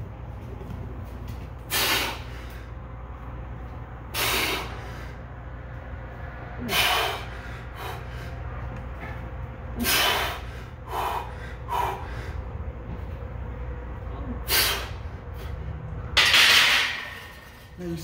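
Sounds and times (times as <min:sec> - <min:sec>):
man breathing forcefully: 0:01.6 - 0:03.1, 0:04.0 - 0:05.6, 0:06.4 - 0:08.7, 0:09.7 - 0:13.1, 0:14.3 - 0:15.9.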